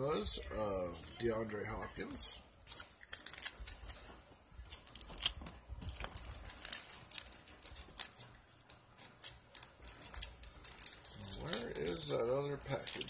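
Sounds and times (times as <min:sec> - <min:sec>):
packaging crinkling: 0:02.6 - 0:13.0.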